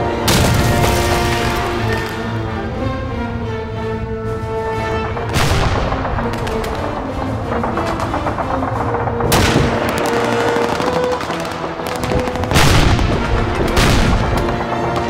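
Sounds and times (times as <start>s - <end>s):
background music: 0.0s - 15.0s
loud gun blasts: 5.2s - 15.0s
rifle and machine-gun shots: 5.3s - 15.0s.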